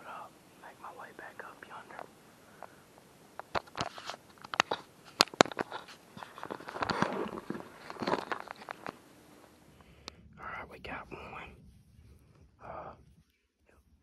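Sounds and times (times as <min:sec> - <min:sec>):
camera handling rustle: 0:03.4 - 0:09.0.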